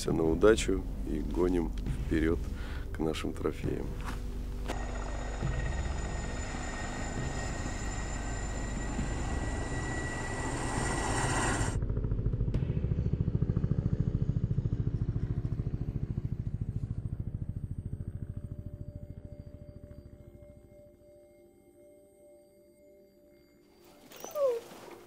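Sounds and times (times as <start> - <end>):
pulsing low engine note: 0.0 - 20.6
rushing engine noise: 4.7 - 11.8.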